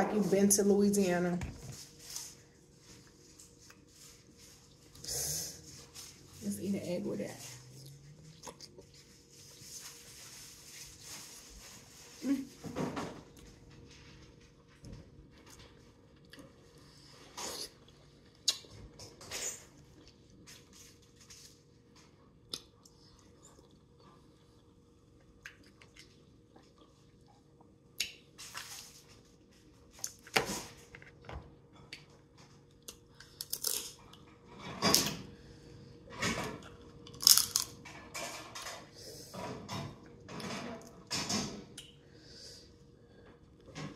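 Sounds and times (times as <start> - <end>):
chewing and lip smacks: 7.8 - 8.9, 17.6 - 18.8, 22.4 - 24.7, 25.3 - 28.2.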